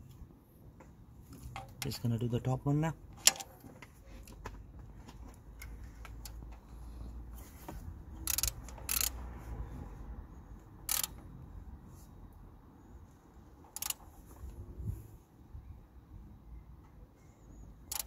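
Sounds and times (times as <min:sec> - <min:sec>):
ratchet wrench clicking: 0:08.2 - 0:09.2, 0:10.8 - 0:11.2, 0:13.7 - 0:14.0.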